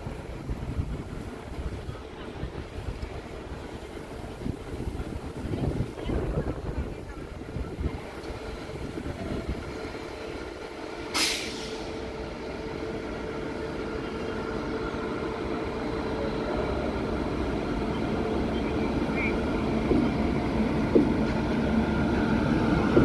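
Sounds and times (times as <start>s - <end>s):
electric locomotive running: 0.0s - 23.0s
brief sharp hiss: 11.1s - 12.0s.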